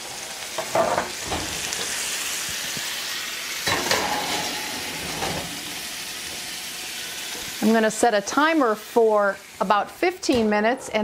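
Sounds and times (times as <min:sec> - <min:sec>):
food sizzling in a skillet: 0:00.0 - 0:10.6
metal pan clattering: 0:03.6 - 0:05.8.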